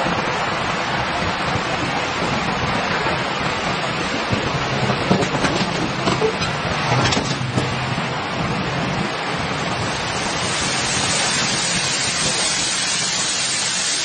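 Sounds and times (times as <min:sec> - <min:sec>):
liferafts inflating with hiss: 0:09.7 - 0:14.0.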